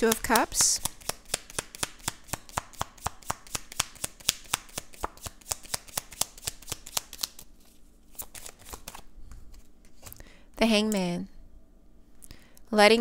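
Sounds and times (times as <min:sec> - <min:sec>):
cards being shuffled: 0:00.0 - 0:10.2.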